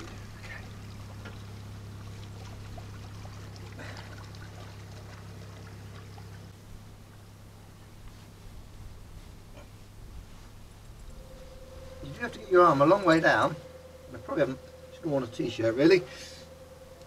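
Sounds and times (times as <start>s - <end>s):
water sloshing and trickling: 0.0s - 8.0s
low hum: 0.0s - 17.0s.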